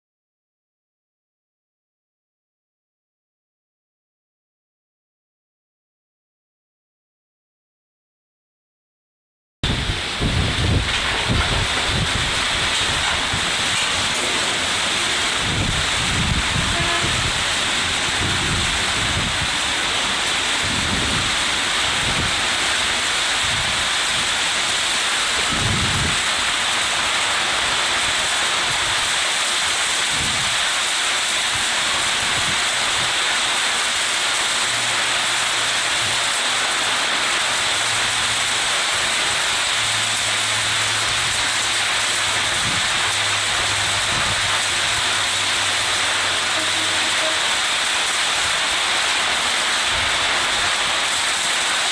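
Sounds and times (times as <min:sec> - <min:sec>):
heavy rain pouring: 0:09.6 - 0:51.9
diesel locomotive engine hum: 0:09.8 - 0:25.5, 0:33.6 - 0:51.8.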